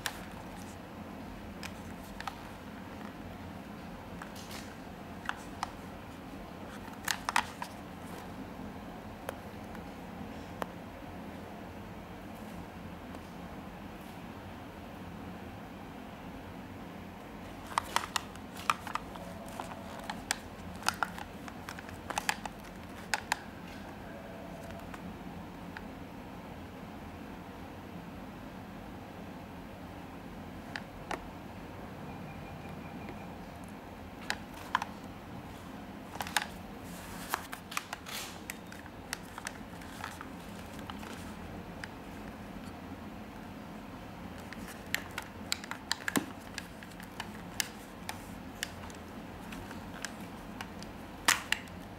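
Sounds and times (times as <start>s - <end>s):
plastic clicks and taps: 44.4s - 51.8s.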